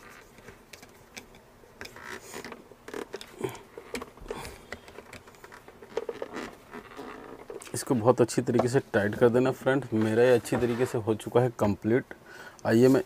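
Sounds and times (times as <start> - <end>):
screwdriver clicks and scrapes on plastic: 0.3 - 3.3.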